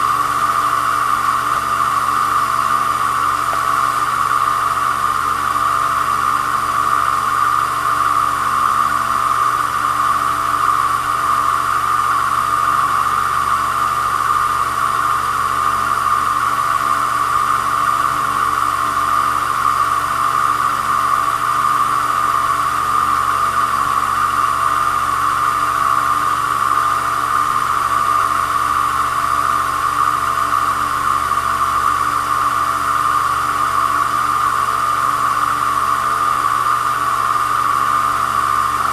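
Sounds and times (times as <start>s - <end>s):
lathe motor whining hum: 0.0s - 38.9s.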